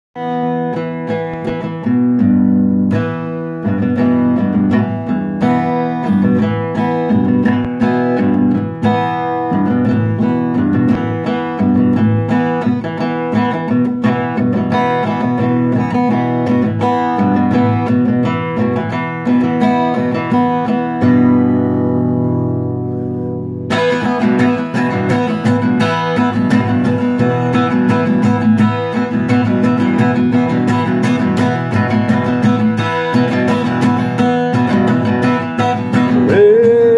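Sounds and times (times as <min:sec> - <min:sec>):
acoustic guitar strumming: 0:00.2 - 0:36.9.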